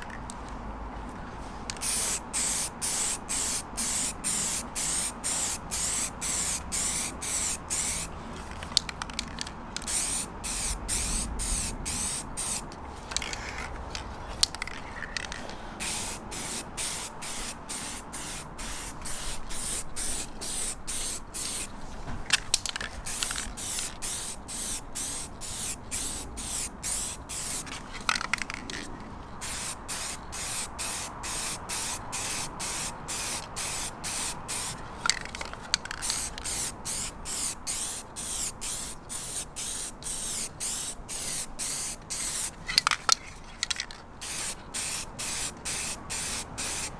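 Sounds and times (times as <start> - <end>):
spray can short bursts: 1.8 - 8.1, 9.9 - 12.6, 15.8 - 21.7, 23.1 - 27.6, 29.4 - 35.3, 36.0 - 42.5, 44.2 - 46.9.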